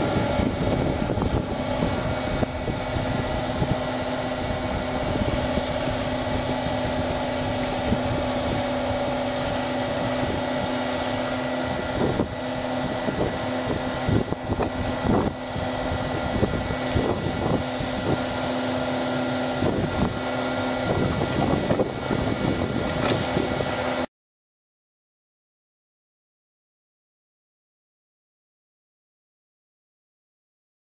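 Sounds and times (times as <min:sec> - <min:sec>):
excavator machine hum: 0:00.0 - 0:24.1
knocks and clanks: 0:23.0 - 0:23.6.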